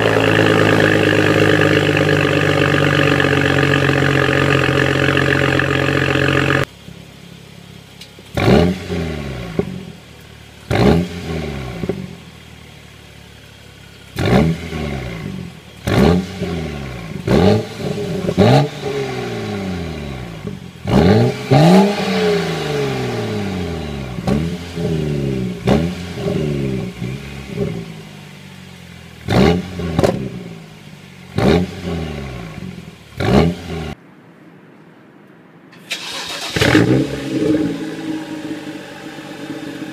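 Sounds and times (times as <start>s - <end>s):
engine throttle blips: 0.0s - 6.7s, 35.8s - 39.9s
car engine idling: 0.0s - 19.0s, 35.8s - 39.9s.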